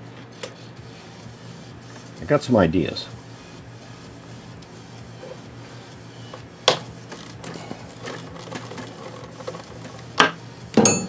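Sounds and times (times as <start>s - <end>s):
metal tool clinks: 10.8s - 11.0s.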